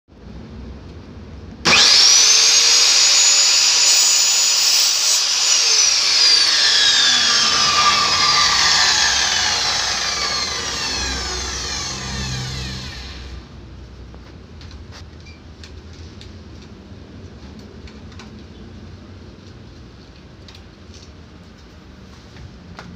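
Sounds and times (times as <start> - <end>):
circular saw cutting metal: 1.7 - 13.5.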